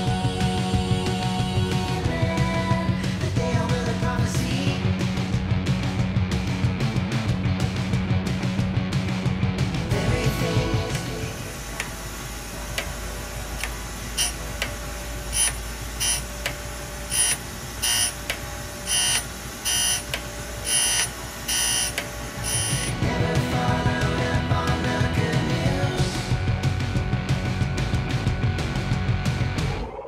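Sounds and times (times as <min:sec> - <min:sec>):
grinder motor hum: 0:10.8 - 0:24.8
high-pitched grinding squeals: 0:13.6 - 0:23.0.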